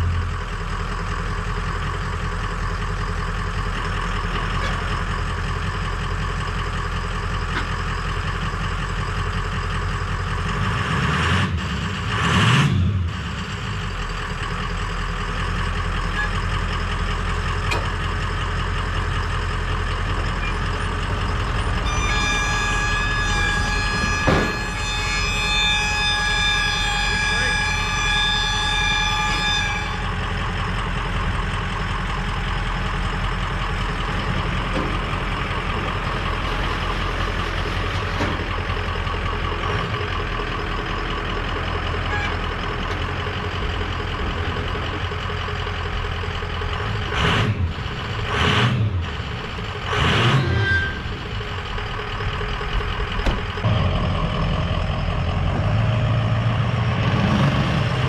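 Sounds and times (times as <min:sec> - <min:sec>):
truck engine running: 0:00.0 - 0:58.0
high-pitched tone: 0:21.8 - 0:30.4.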